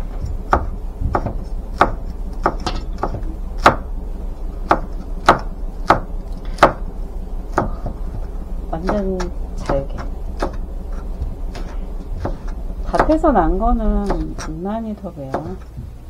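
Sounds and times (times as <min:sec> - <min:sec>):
knife chopping on cutting board: 0:00.2 - 0:03.9, 0:04.6 - 0:06.8, 0:07.5 - 0:13.2, 0:14.0 - 0:14.6, 0:15.2 - 0:15.8.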